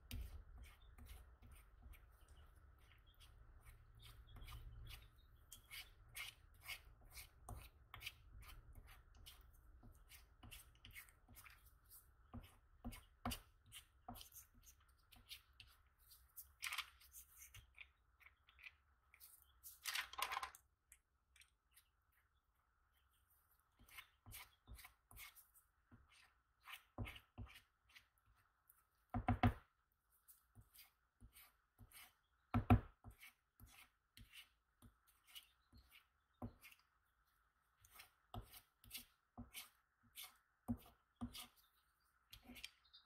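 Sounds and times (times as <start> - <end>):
spatula scraping ointment on paper: 0.0 - 19.8, 23.6 - 29.0, 30.1 - 43.0.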